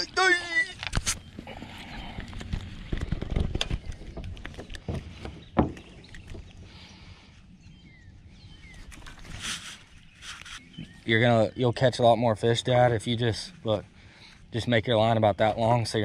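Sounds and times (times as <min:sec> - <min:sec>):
fishing gear knocks and clicks: 0:02.1 - 0:06.6.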